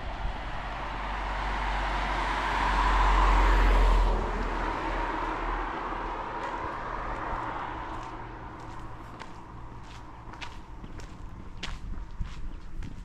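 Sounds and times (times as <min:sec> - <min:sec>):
car driving past: 0:00.0 - 0:09.8.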